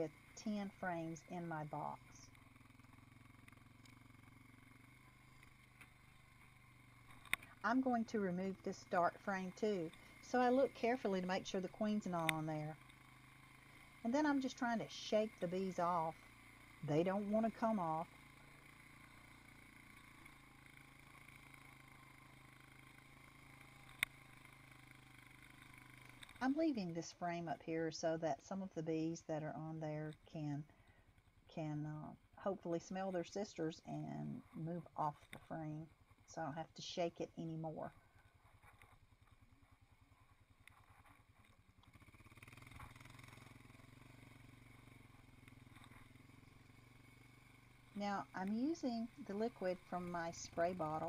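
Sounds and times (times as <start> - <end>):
faint steady hum: 0.0 - 38.1, 41.9 - 51.0
faint low hum: 14.0 - 18.2.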